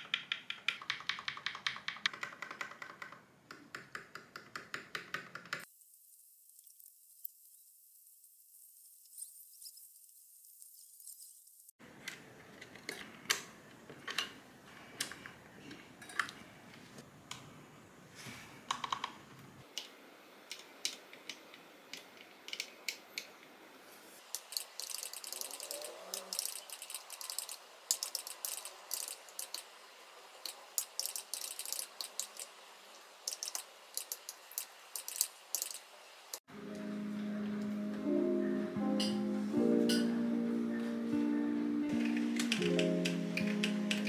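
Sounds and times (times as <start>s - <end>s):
fast typing on keyboard: 0.0s - 3.2s, 24.6s - 29.6s.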